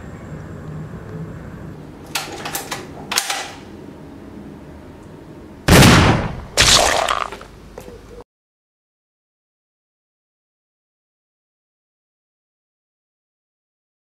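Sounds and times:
rifle shots: 5.7s - 6.8s.

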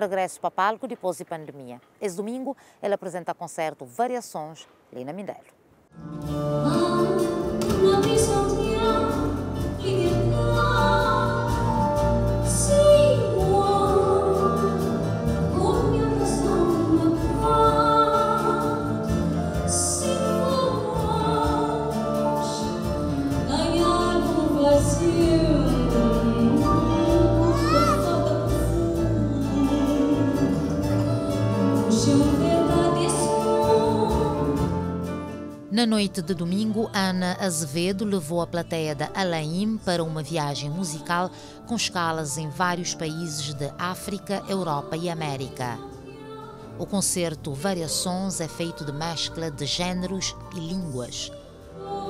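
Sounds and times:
acoustic band playing: 5.9s - 52.0s
woman singing with vibrato: 6.5s - 35.0s, 44.2s - 52.0s.

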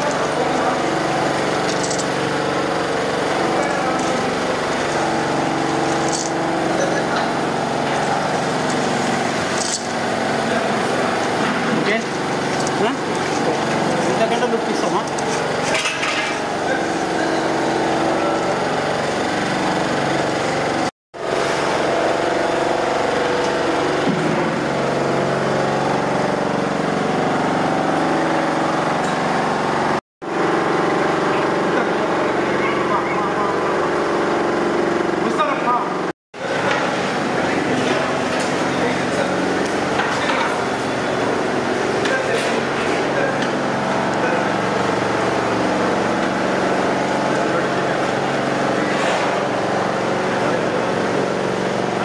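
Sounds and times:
small engine running: 0.0s - 35.8s
motor droning steadily: 0.0s - 52.0s.

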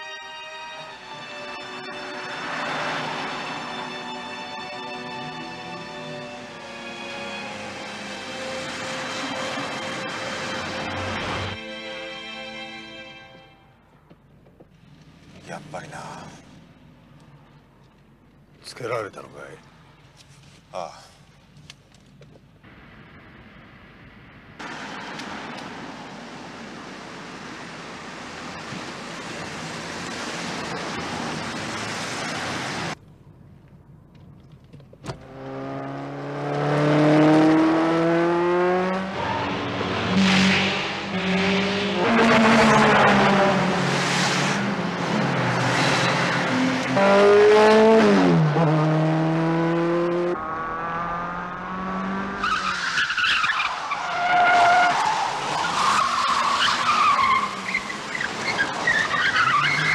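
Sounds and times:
road rush: 0.0s - 59.9s
car engine revving: 35.1s - 53.8s
tyres squealing: 52.4s - 59.9s.

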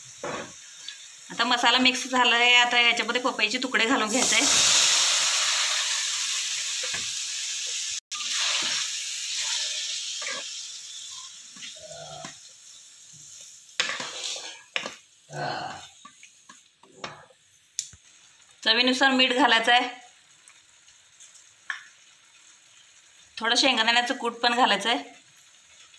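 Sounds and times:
hot oil sizzling: 0.0s - 25.9s
wooden spoon stirring and scraping: 13.8s - 15.0s.

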